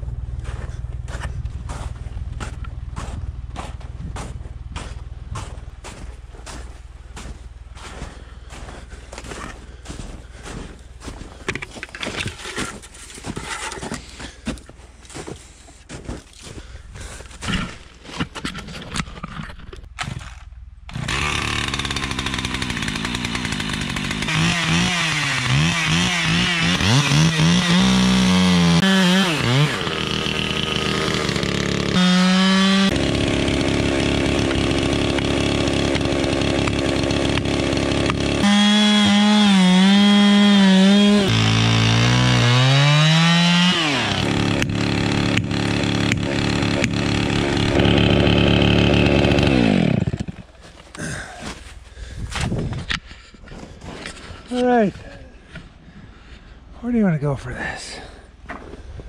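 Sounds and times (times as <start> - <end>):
chainsaw cutting tree: 20.9 - 51.3.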